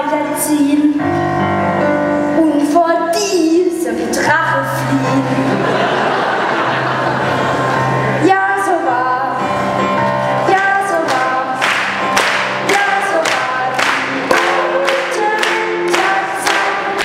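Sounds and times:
audience clapping along: 0:10.9 - 0:17.0
group singing with accompaniment: 0:12.6 - 0:17.0.

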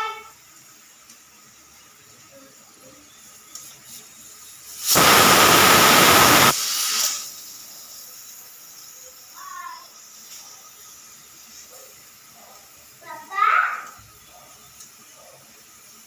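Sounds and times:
pressure cooker whistle hissing: 0:04.7 - 0:07.5.

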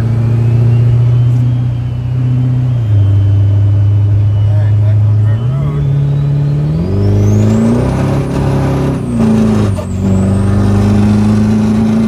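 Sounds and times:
turbo whistle: 0:00.0 - 0:08.4
diesel engine under full throttle: 0:00.0 - 0:12.0.

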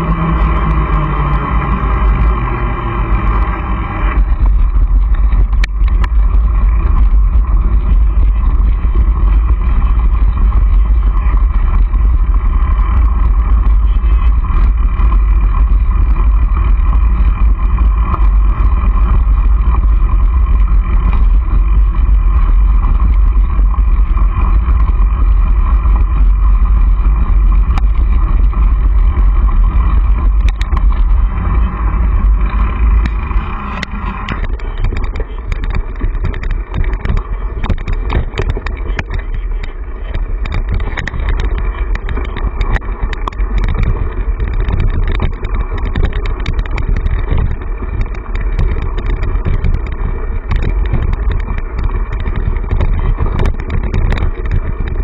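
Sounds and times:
bike tyres rolling: 0:00.0 - 0:55.0
small rattles and clicks: 0:00.0 - 0:55.0
wind rumble on microphone: 0:00.0 - 0:55.0.

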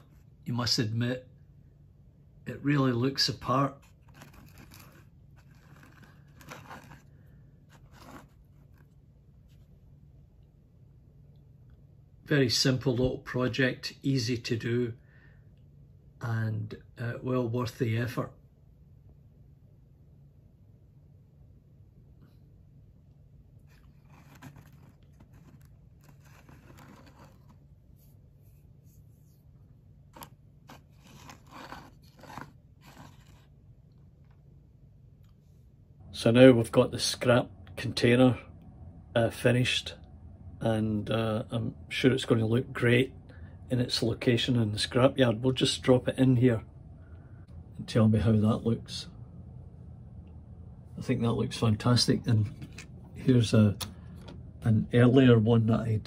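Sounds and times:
low hum: 0:00.0 - 0:56.0
plastic container scraping: 0:03.7 - 0:09.0, 0:23.6 - 0:27.7, 0:30.1 - 0:33.6.

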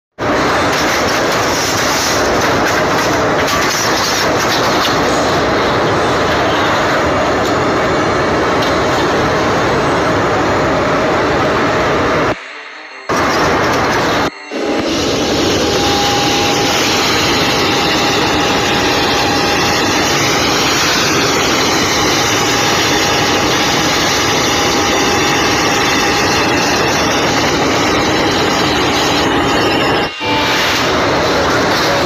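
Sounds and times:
constant whine: 0:00.2 - 0:32.0
large engine roaring: 0:13.1 - 0:32.0.

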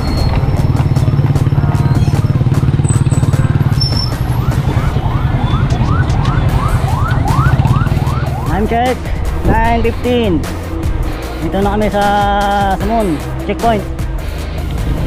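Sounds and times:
vehicle engine running: 0:00.0 - 0:15.0
siren-like yelp: 0:03.8 - 0:08.9.

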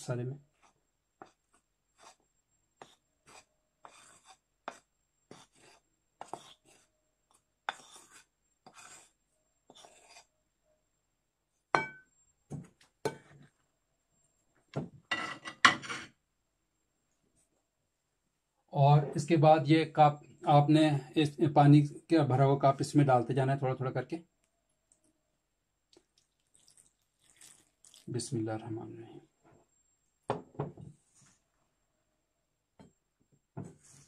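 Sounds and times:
spoon scraping a plate: 0:15.1 - 0:16.2.

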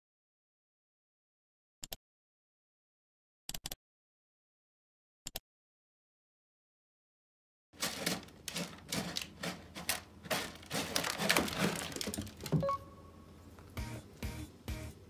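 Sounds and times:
cat scratching in litter: 0:07.8 - 0:12.6.

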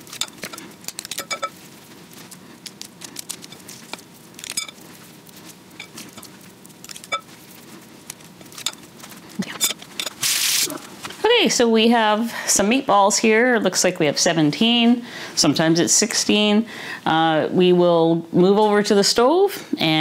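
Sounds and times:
hands rolling meatballs: 0:00.0 - 0:10.6.

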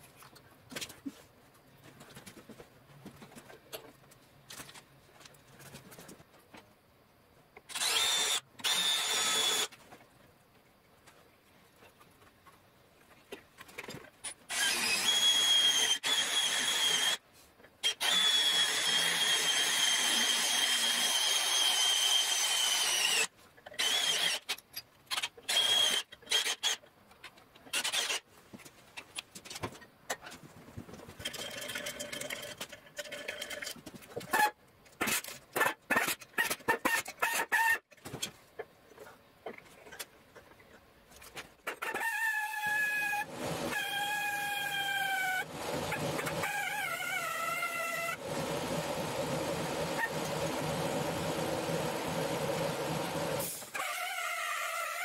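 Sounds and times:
drill boring through steel: 0:07.7 - 0:09.7, 0:14.5 - 0:17.2, 0:17.8 - 0:24.5, 0:25.5 - 0:26.8.

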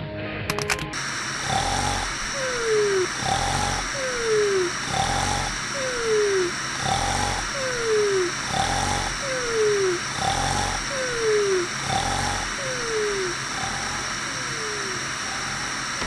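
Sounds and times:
cartoon snoring: 0:01.4 - 0:15.0.

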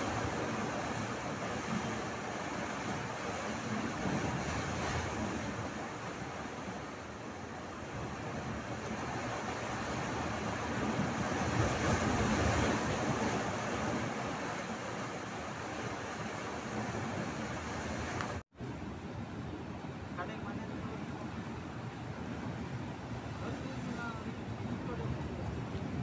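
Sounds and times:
surf breaking through rocks: 0:00.0 - 0:18.4.

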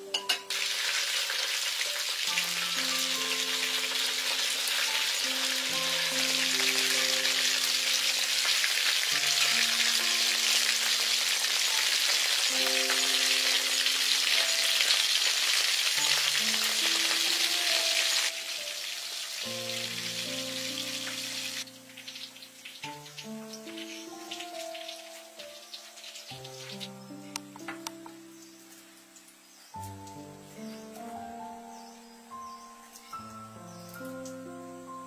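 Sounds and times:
food sizzling in hot oil: 0:00.0 - 0:27.7
background music: 0:00.0 - 0:35.0.

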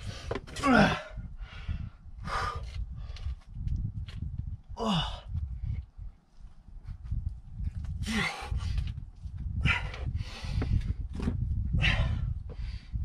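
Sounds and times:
person breathing with effort: 0:00.0 - 0:03.4, 0:04.8 - 0:05.6, 0:08.0 - 0:08.9, 0:09.6 - 0:11.0, 0:11.7 - 0:13.0
person grunting: 0:04.8 - 0:05.3, 0:08.0 - 0:08.5.

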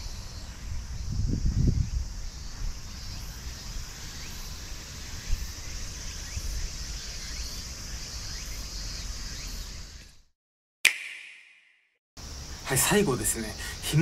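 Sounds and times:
wind rumbling on microphone: 0:00.0 - 0:07.2
insects chorus: 0:00.0 - 0:10.2, 0:12.2 - 0:14.0.

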